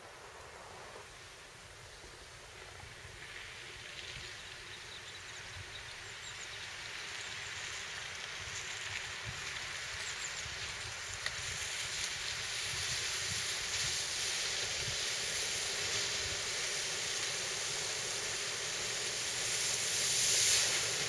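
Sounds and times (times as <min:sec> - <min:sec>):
hiss of water spray: 0:06.6 - 0:21.0
wind rumble on microphone: 0:08.4 - 0:18.8.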